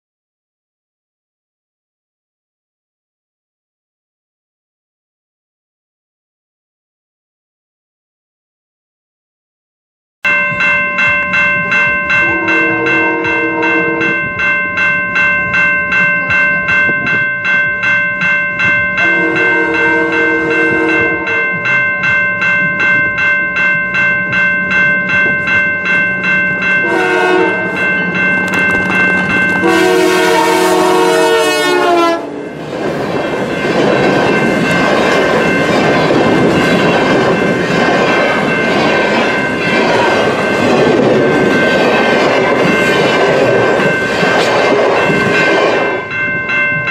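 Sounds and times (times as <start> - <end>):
level crossing bell ringing: 10.2 - 32.8, 38.4 - 46.9
train wheel and rail noise: 10.3 - 46.9
locomotive air horn: 12.2 - 14.2, 19.0 - 21.5, 26.8 - 27.8, 29.6 - 32.4.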